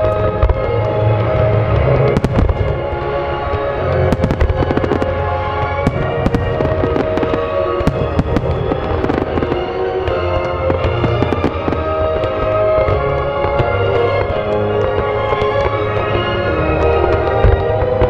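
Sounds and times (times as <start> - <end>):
fireworks bangs: 0.0 - 18.0
music playing: 0.0 - 18.0.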